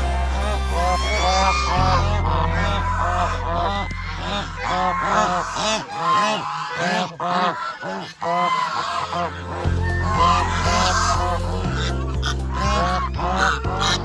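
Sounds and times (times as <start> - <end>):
low steady hum: 0.0 - 6.6
geese honking: 0.0 - 14.0.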